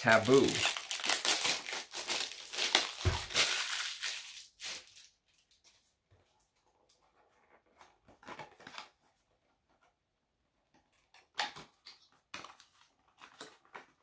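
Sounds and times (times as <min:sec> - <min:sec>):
packaging rustling: 0:00.0 - 0:05.7.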